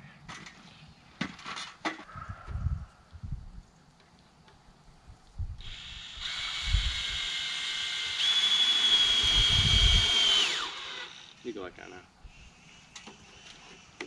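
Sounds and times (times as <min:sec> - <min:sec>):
power drill driving screw: 0:05.6 - 0:11.5.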